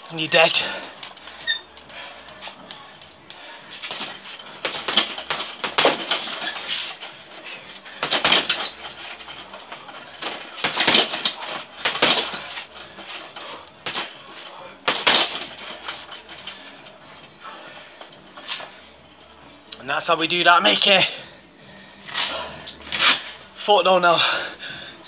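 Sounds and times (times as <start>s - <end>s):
chain clinking: 0.0s - 16.8s
boxing gloves punching heavy bag: 0.5s - 7.3s, 7.9s - 14.2s, 14.8s - 16.4s.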